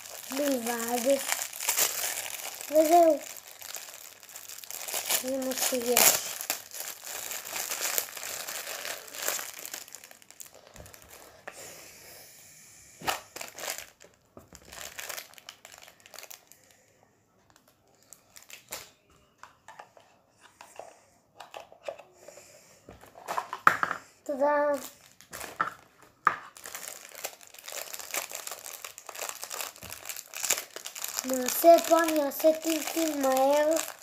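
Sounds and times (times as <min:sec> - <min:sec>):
plastic bag crinkling and tearing: 0:00.0 - 0:11.5, 0:13.0 - 0:16.8, 0:17.9 - 0:19.0, 0:24.5 - 0:34.0.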